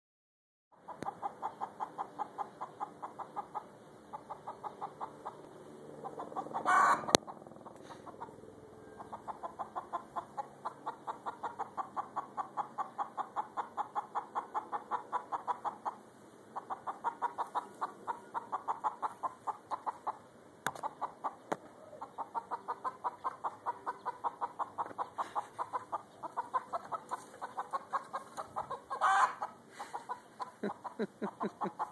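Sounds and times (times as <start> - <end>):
chicken clucking: 0.8 - 31.9
harsh chicken call: 6.3 - 8.3, 21.9 - 31.9.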